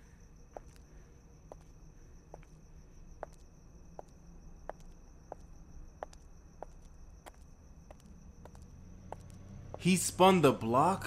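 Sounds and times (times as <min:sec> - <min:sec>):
footsteps: 0:00.0 - 0:02.6, 0:03.2 - 0:10.0
crickets trilling: 0:00.0 - 0:11.0.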